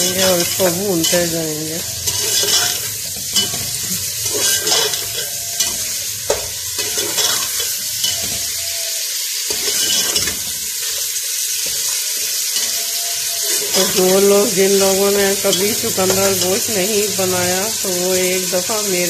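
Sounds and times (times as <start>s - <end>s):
metal spoon scraping a pot: 0.0s - 17.9s
meat sizzling in hot oil: 0.0s - 19.0s.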